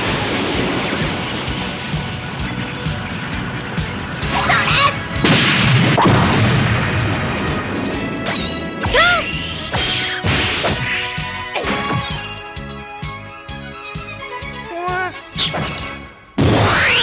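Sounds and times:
background music: 0.0 - 17.0
cartoon crashing and banging: 15.4 - 17.0.

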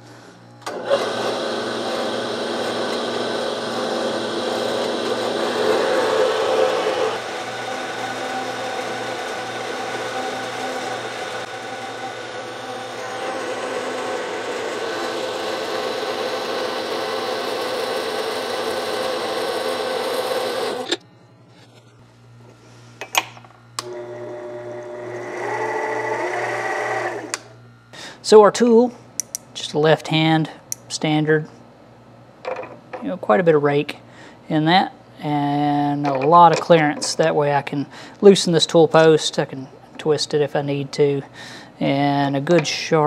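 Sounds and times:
bandsaw motor hum: 0.6 - 21.1, 23.6 - 27.9
bandsaw cutting metal: 0.7 - 21.0.

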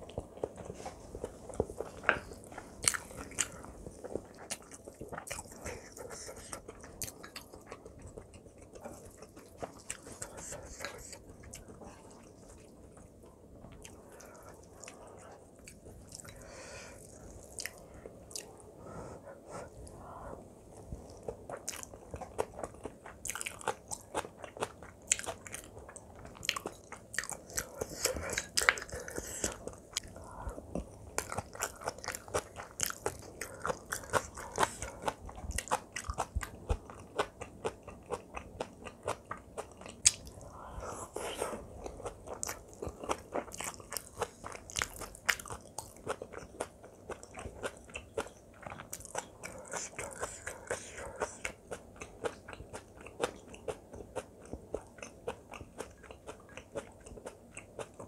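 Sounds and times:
person chewing food: 0.0 - 58.0.

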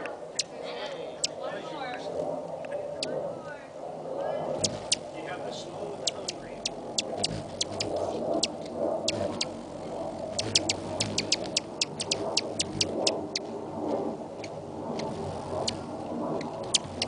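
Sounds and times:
hummingbird wings humming: 0.0 - 1.4, 4.4 - 13.5, 14.3 - 17.0
high bird chips: 4.6 - 5.1, 6.0 - 9.6, 10.4 - 13.4, 16.4 - 17.0.

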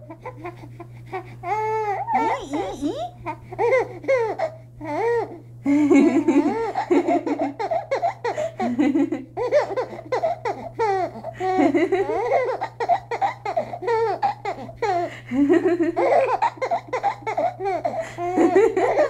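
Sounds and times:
baby laughing: 1.6 - 5.4, 6.0 - 19.0.

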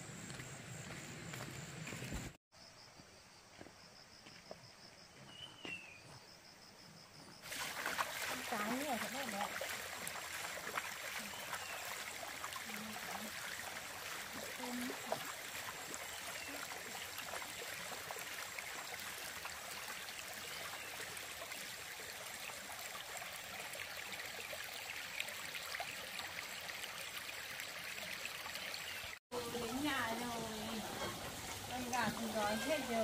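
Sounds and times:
running water: 7.4 - 33.0.

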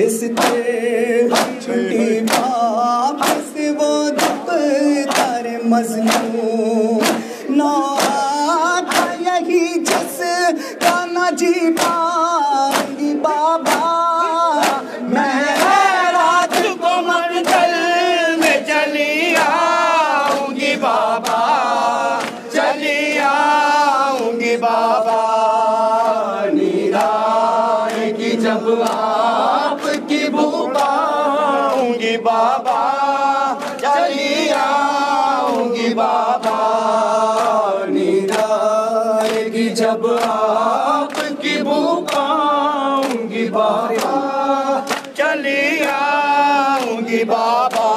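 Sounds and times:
crowd of men singing in unison: 0.0 - 47.9
hands slapping bare chests: 0.4 - 0.6, 1.3 - 1.7, 2.3 - 2.6, 3.2 - 6.4, 7.0 - 12.1, 12.7 - 14.0, 14.6 - 17.8, 19.3 - 23.4, 28.8 - 29.1, 33.6 - 35.7, 37.3 - 37.6, 38.3 - 38.6, 39.2 - 39.5, 40.1 - 40.4, 41.0 - 42.3, 43.0 - 43.2, 43.8 - 45.2, 47.6 - 47.9.

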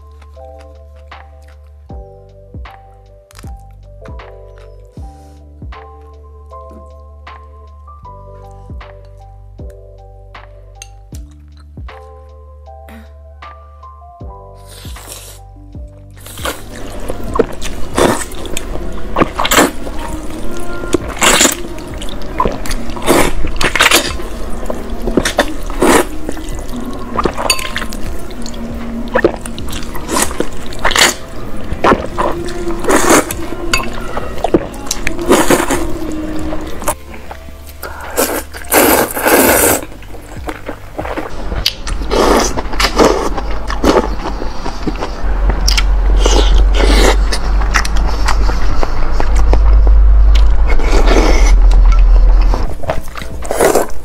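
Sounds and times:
background music: 0.0 - 54.0
wet slurping of noodles: 38.1 - 39.9.

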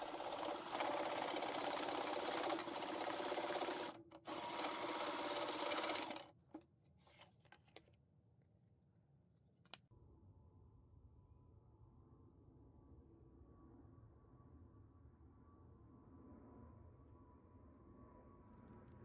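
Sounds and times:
scroll saw rattling: 0.0 - 6.3.

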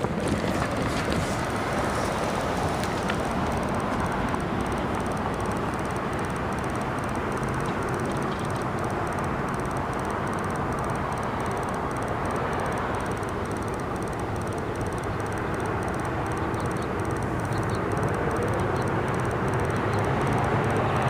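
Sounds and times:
diesel locomotives rumbling: 0.0 - 21.0.

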